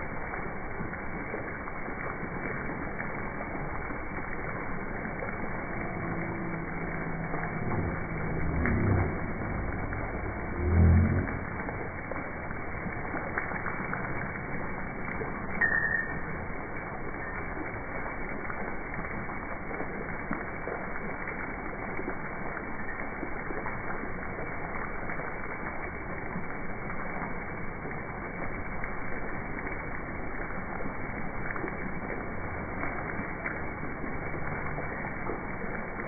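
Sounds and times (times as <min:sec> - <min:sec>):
fountain water splashing: 0:00.0 - 0:36.0
short high chirp: 0:15.6 - 0:16.4.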